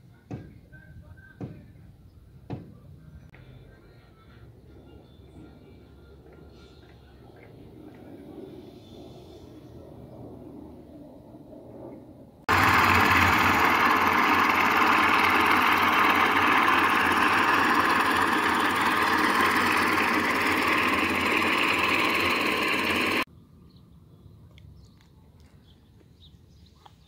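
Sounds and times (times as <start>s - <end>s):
concrete mixer engine running: 12.5s - 23.3s.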